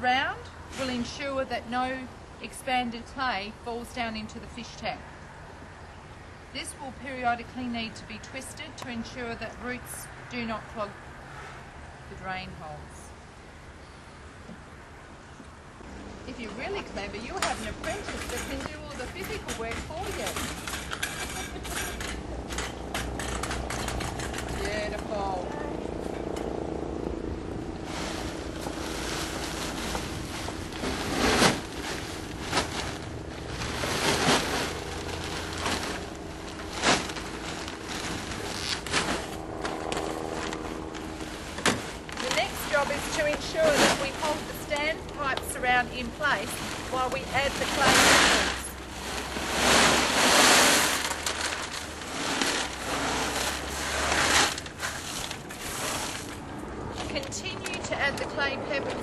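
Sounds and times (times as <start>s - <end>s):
plastic bag crinkling: 27.8s - 49.4s, 50.0s - 56.4s.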